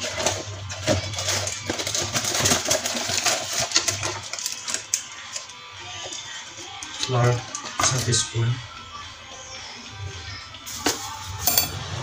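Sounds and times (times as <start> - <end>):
plastic packets rustling: 0.0 - 8.2
metal spoon clinking: 11.4 - 11.9.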